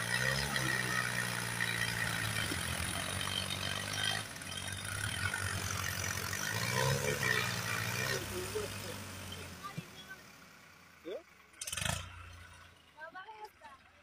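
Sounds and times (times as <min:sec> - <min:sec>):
tractor diesel engines running: 0:00.0 - 0:14.0.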